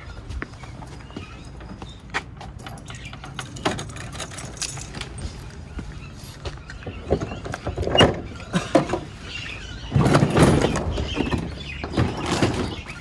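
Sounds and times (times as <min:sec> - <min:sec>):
metal door rattle: 0:02.6 - 0:05.2, 0:09.9 - 0:13.0
metal door latch knocks and clicks: 0:02.7 - 0:05.1.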